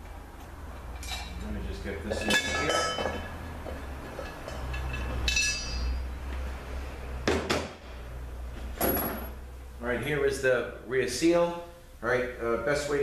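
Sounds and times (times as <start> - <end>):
metal striking metal and ringing: 2.2 - 3.3, 4.2 - 6.1.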